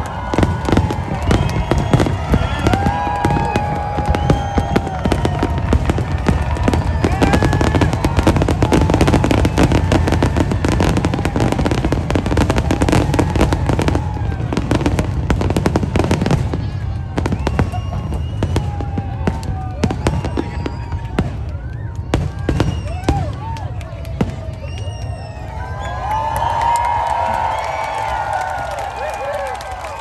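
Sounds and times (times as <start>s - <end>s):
fireworks crackling and popping: 0.0s - 30.0s
fireworks whistling: 0.1s - 21.4s, 22.1s - 23.3s.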